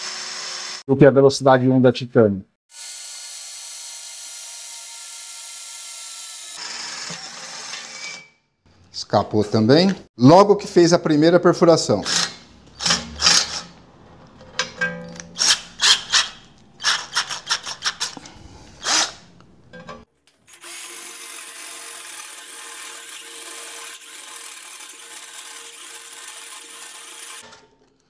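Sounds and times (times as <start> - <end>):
cordless drill boring steel: 0.0 - 0.8, 2.7 - 8.4, 15.4 - 19.2, 20.5 - 27.5.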